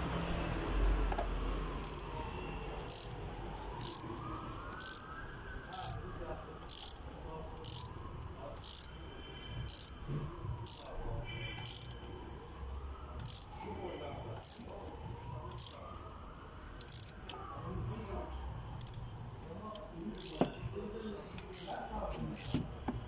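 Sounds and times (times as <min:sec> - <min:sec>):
distant siren wailing: 0:00.0 - 0:23.0
ratchet clicking: 0:01.8 - 0:02.1, 0:02.8 - 0:03.2, 0:03.8 - 0:04.1, 0:04.7 - 0:05.1, 0:05.7 - 0:06.0, 0:06.6 - 0:07.0, 0:07.6 - 0:08.0, 0:08.6 - 0:08.9, 0:09.6 - 0:10.0, 0:10.6 - 0:10.9, 0:11.5 - 0:12.0, 0:13.2 - 0:13.5, 0:14.4 - 0:14.7, 0:15.5 - 0:15.8, 0:16.8 - 0:17.2, 0:18.8 - 0:19.0, 0:19.7 - 0:20.6, 0:21.4 - 0:23.0.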